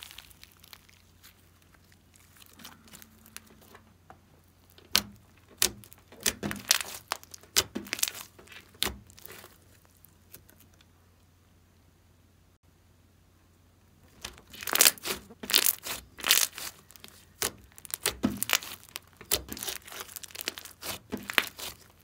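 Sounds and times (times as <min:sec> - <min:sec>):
slime clicking and popping: 0:14.2 - 0:21.9.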